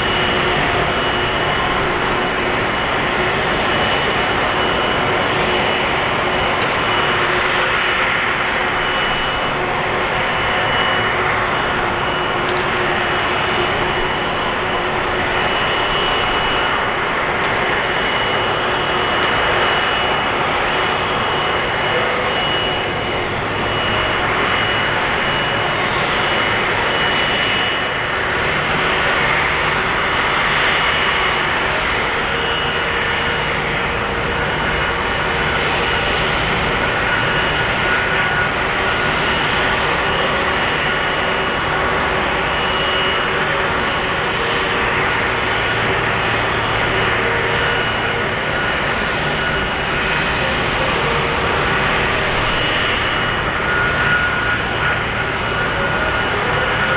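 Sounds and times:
high engine whine: 0:00.0 - 0:56.9
jet engines idling: 0:00.0 - 0:56.9.

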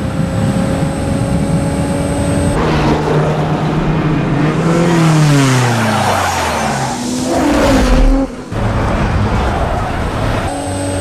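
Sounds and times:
low engine drone: 0:00.0 - 0:11.0
car skidding in dirt: 0:02.6 - 0:10.5.

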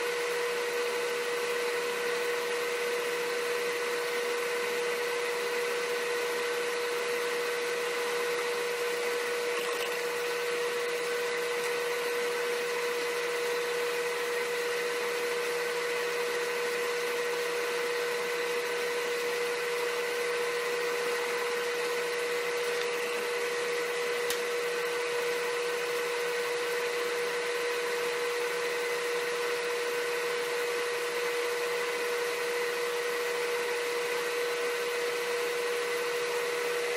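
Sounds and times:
steady machine hum: 0:05.4 - 0:14.3.

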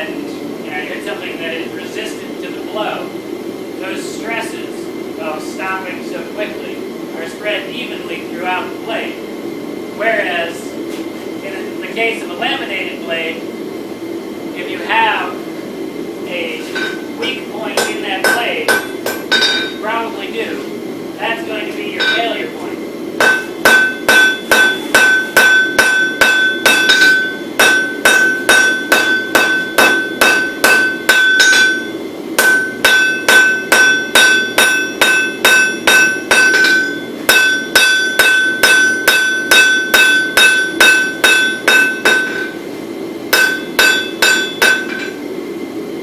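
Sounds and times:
hammer blows on anvil: 0:16.7 - 0:19.8, 0:22.0 - 0:22.4, 0:23.2 - 0:42.6, 0:43.3 - 0:45.2
anvil ringing: 0:16.8 - 0:19.8, 0:22.0 - 0:22.4, 0:23.2 - 0:42.6, 0:43.3 - 0:45.2.

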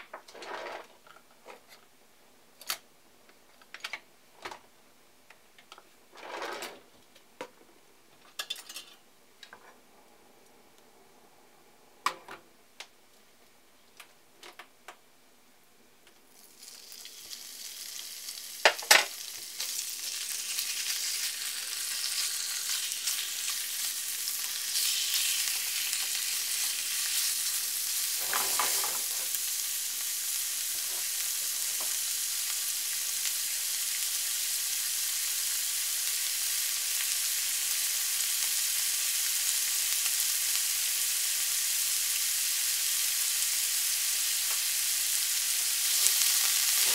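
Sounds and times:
meat sizzling in oil: 0:16.3 - 0:46.9.

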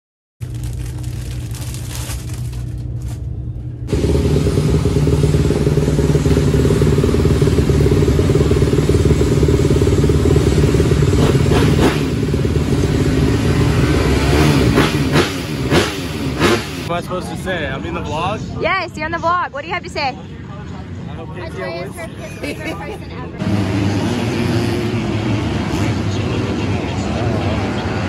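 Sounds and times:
motocross bike engine running: 0:00.4 - 0:16.9.

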